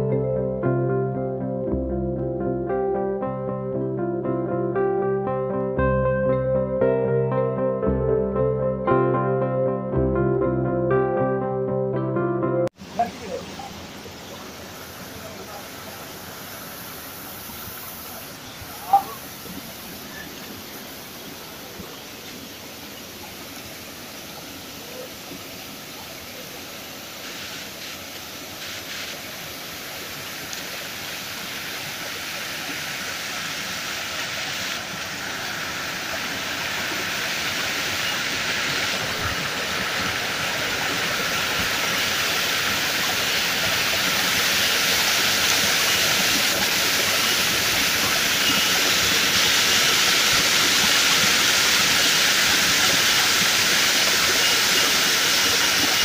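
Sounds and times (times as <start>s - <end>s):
stream rushing over boulders: 12.8s - 56.0s.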